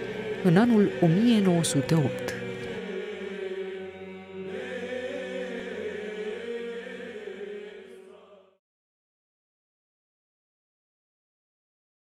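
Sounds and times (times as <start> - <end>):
chant in long held notes: 0.0 - 8.6.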